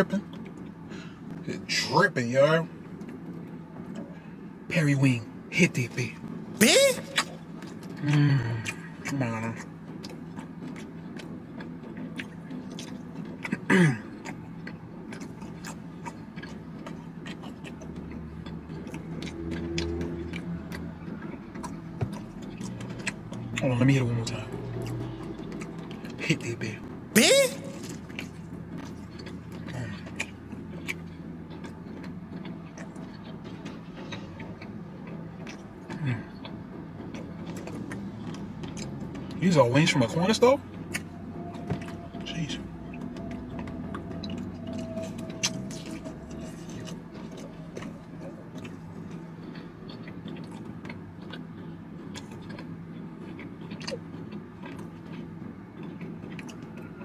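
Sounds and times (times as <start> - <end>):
car engine hum: 0.0 - 57.0
person chewing chicken wing: 6.6 - 23.6, 24.2 - 26.2, 27.2 - 39.4, 40.8 - 57.0
wet mouth clicks and smacks: 6.7 - 23.6, 27.3 - 39.4, 42.9 - 56.9.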